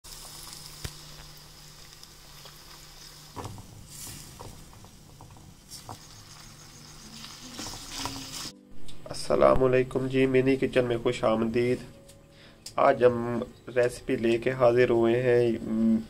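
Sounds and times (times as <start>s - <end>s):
food sizzling in oil: 0.1s - 8.5s.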